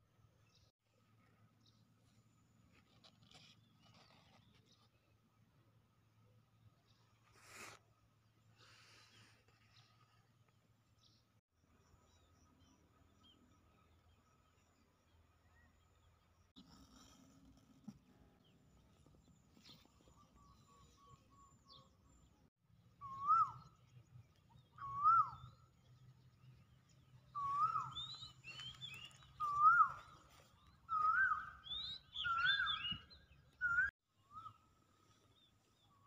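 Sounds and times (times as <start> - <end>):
higher bird chirps: 27.3 - 34.7.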